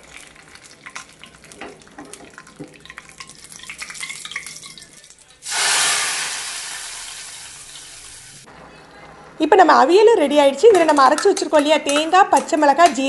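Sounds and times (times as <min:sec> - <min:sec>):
seeds crackling in hot oil: 0:00.0 - 0:08.5
loud hiss: 0:05.4 - 0:08.5.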